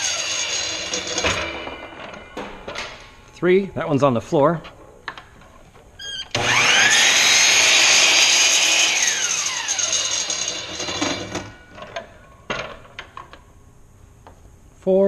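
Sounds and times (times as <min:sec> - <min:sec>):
saw cutting wood: 0:00.0 - 0:01.2, 0:06.3 - 0:11.4
miter saw whining: 0:00.0 - 0:01.3, 0:06.0 - 0:11.5.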